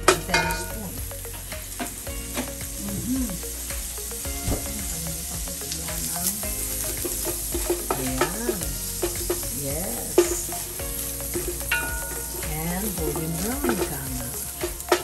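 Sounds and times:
garlic sizzling in oil: 0:00.1 - 0:15.0
wooden spoon scraping and knocking pan: 0:05.5 - 0:15.0.

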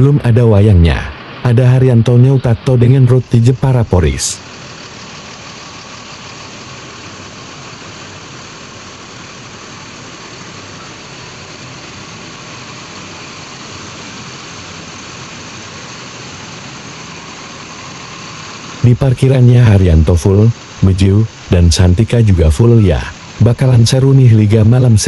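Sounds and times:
diesel bus engines idling: 0:00.0 - 0:25.0.

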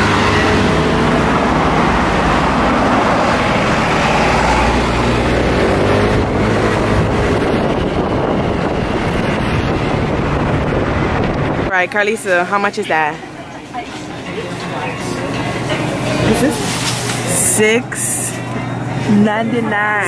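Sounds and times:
wind rushing over microphone: 0:00.0 - 0:11.7.

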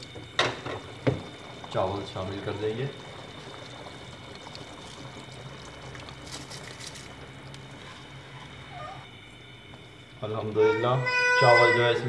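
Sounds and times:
rice rattling into liquid: 0:00.0 - 0:08.8
broth boiling in a metal pot: 0:00.0 - 0:12.0.

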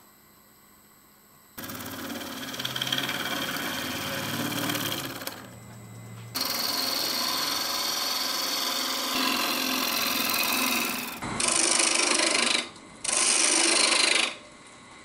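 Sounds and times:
gouge cutting wood on lathe: 0:01.6 - 0:05.6, 0:06.4 - 0:14.4
lathe humming: 0:01.6 - 0:14.4.

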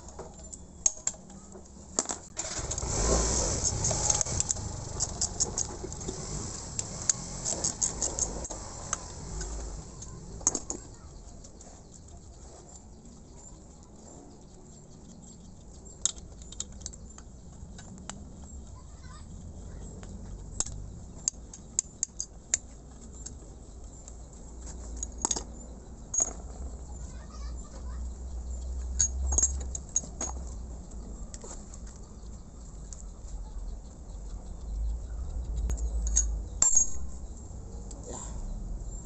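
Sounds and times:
metal tools clinking and rattling: 0:24.8 - 0:26.8, 0:28.8 - 0:30.6, 0:35.7 - 0:37.2.

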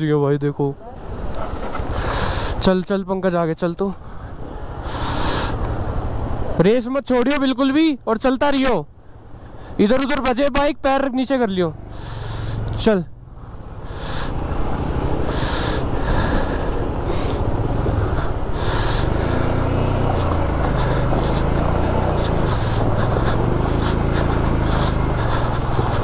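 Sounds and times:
motorcycle engine revving: 0:11.7 - 0:26.0.

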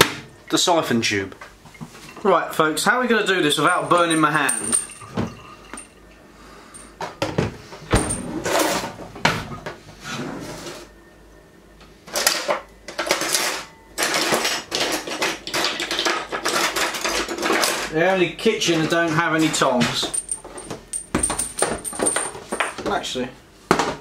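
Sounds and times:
metal utensils clattering: 0:03.6 - 0:05.9, 0:12.2 - 0:17.9, 0:19.5 - 0:22.8.

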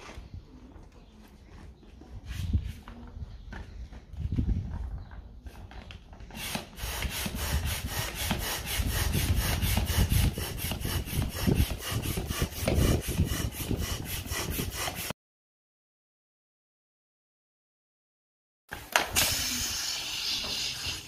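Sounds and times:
hand pump pumping air: 0:06.2 - 0:15.1, 0:18.7 - 0:21.0.

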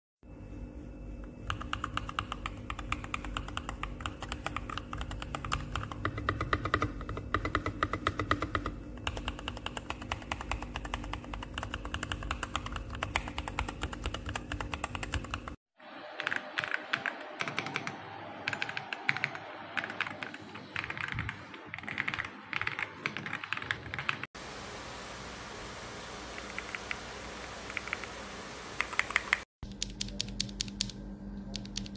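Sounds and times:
mechanical keyboard typing: 0:01.4 - 0:15.6, 0:16.2 - 0:24.3, 0:28.8 - 0:31.9.

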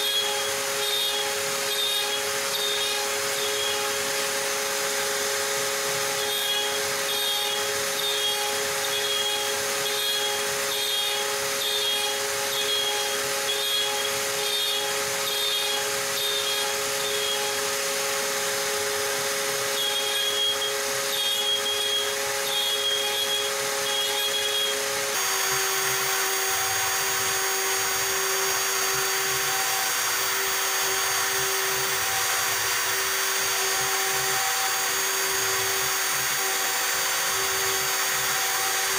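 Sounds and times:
stepper motors chirping: 0:00.0 - 0:04.1, 0:06.0 - 0:17.7, 0:19.6 - 0:24.9
router spindle whine: 0:00.0 - 0:38.9.

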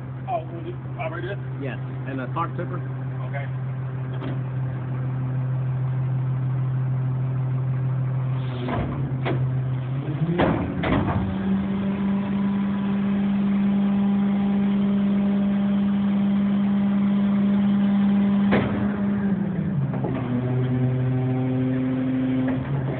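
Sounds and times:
hydraulic packer running: 0:00.0 - 0:22.9
truck diesel engine: 0:00.0 - 0:22.9
sharp clunks: 0:04.1 - 0:04.5, 0:08.6 - 0:09.5, 0:10.3 - 0:11.3, 0:18.4 - 0:19.0.

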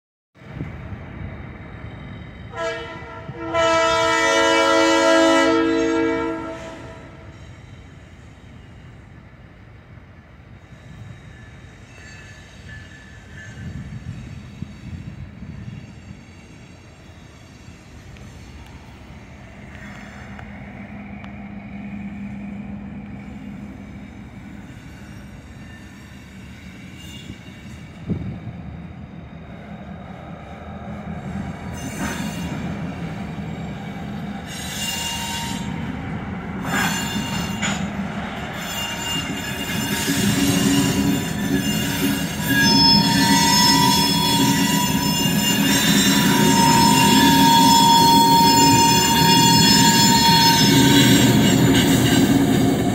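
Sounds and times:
locomotive air horn blasts: 0:02.5 - 0:07.4, 0:42.4 - 0:52.3
locomotive diesel engine drone: 0:18.9 - 0:24.4.

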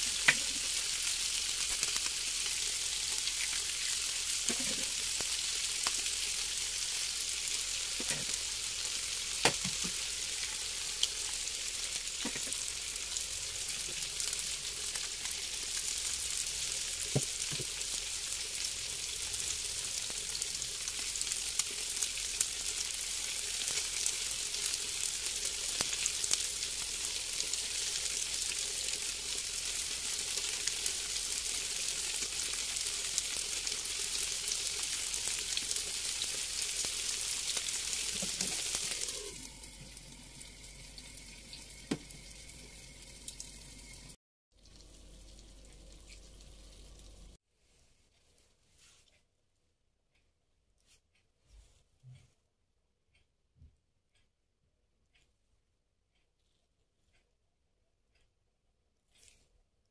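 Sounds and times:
food sizzling in a frying pan: 0:00.0 - 0:47.4.

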